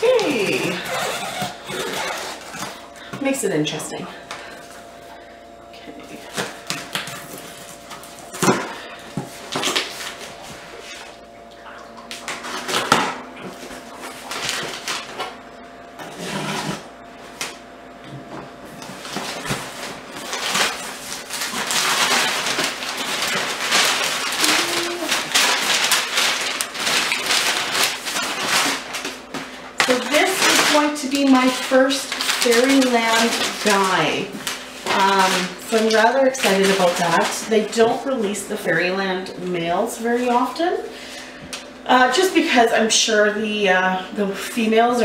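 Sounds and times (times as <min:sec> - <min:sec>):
packing paper rustling: 0:00.0 - 0:03.1, 0:06.2 - 0:11.1, 0:12.2 - 0:15.4, 0:18.6 - 0:38.0.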